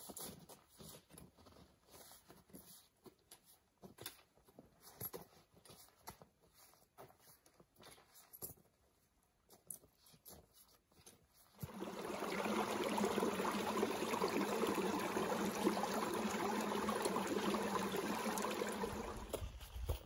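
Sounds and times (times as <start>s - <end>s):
running water splashing: 11.6s - 19.8s.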